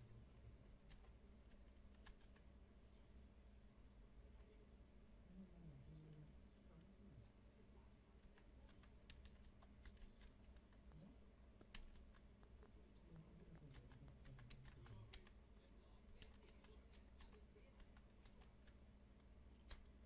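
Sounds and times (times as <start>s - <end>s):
low steady hum: 0.0s - 20.0s
typing on computer keyboard: 0.8s - 2.5s, 8.2s - 11.0s, 11.6s - 12.7s, 13.4s - 15.4s, 16.0s - 20.0s.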